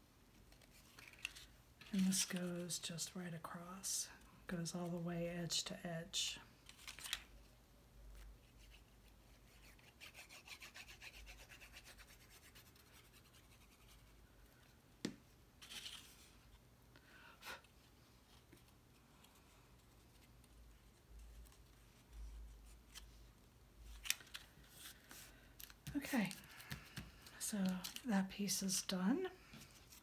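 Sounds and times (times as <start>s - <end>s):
paper rustling: 0.4s - 2.6s, 6.6s - 7.3s, 15.6s - 16.4s, 23.8s - 28.1s.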